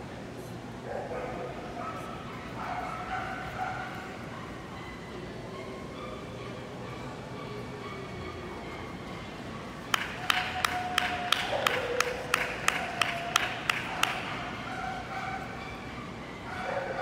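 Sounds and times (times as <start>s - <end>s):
person clapping: 9.9s - 14.5s.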